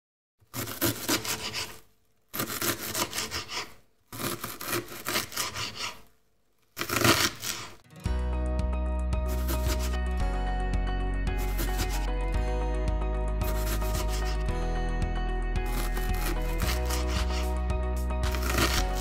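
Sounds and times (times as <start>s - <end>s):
marker writing: 2.7s - 3.8s, 5.1s - 6.0s, 9.3s - 10.0s, 11.4s - 12.1s, 13.4s - 14.5s, 15.7s - 17.6s.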